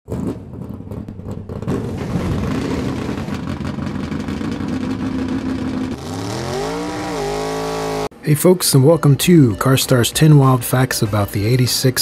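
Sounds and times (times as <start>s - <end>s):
car engine running hard: 1.2s - 8.2s.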